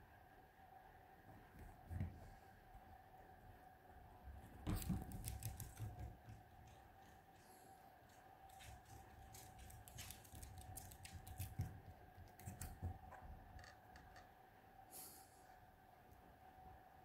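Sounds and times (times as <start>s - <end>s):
faint steady hum: 0.0s - 17.0s
dog claws clicking and scrabbling: 4.7s - 6.9s, 8.4s - 13.0s.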